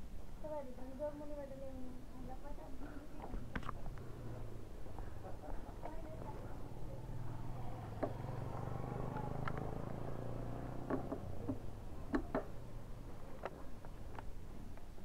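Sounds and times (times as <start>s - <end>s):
sharp clicks and knocks: 10.8s - 12.6s.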